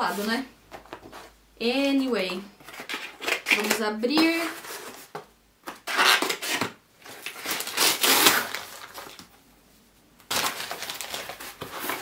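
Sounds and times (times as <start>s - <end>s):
package wrapping rustling and tearing: 5.8s - 9.4s, 10.2s - 12.0s.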